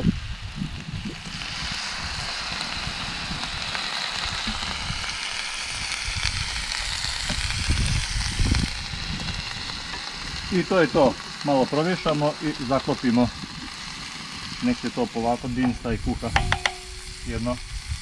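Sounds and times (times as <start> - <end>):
vegetables sizzling in a pan: 0.0 - 18.0
low thumps: 15.6 - 17.3.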